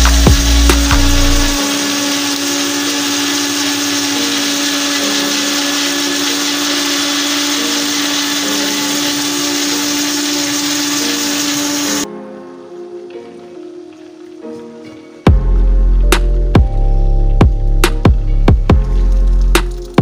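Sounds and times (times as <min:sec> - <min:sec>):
blender running: 0:00.0 - 0:12.1.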